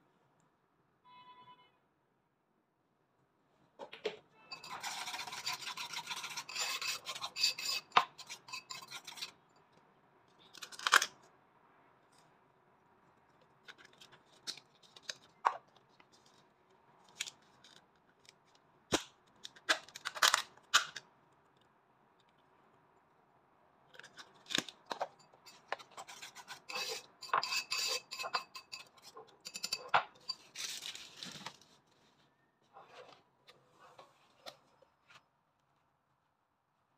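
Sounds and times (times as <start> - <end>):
whisk beating egg in bowl: 4.6 - 9.3.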